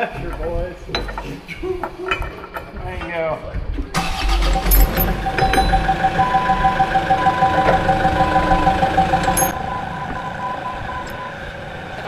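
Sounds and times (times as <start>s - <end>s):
diesel engine pulsing: 4.0s - 12.0s.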